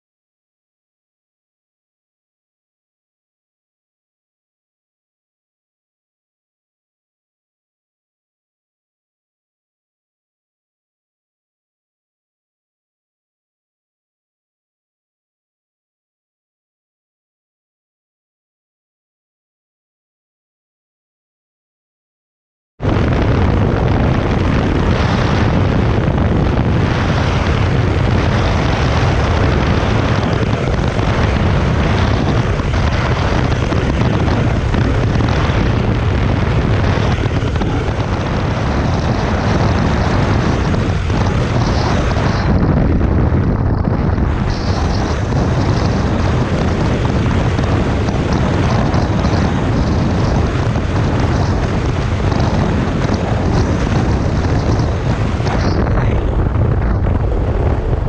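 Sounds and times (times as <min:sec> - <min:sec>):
heavy wind noise on microphone: 0:22.8 - 0:58.0
motorcycle engine droning: 0:22.8 - 0:58.0.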